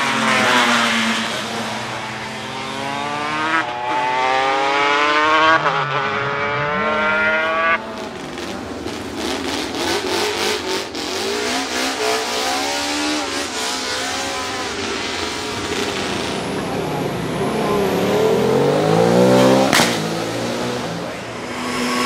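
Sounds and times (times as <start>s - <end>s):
racing motorcycles accelerating: 0.0s - 22.0s
engine crackles: 7.2s - 22.0s.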